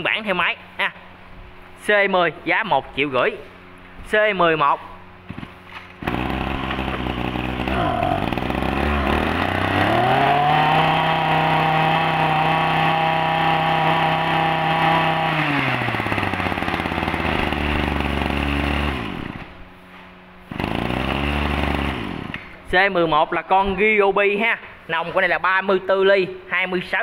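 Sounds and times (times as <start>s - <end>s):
brush cutter engine revving: 5.3s - 19.6s, 20.5s - 22.6s.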